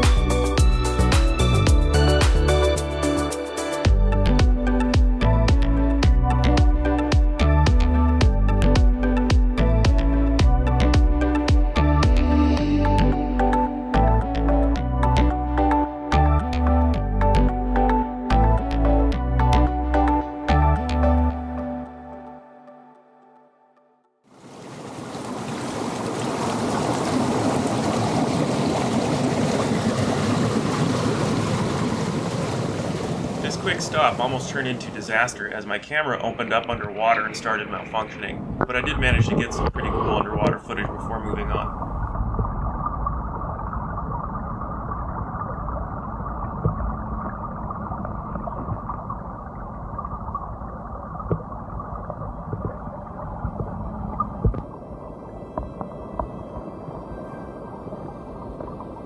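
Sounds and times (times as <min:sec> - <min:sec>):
ocean surf washing ashore: 0:24.3 - 0:41.8
muffled underwater rush: 0:24.3 - 0:59.0.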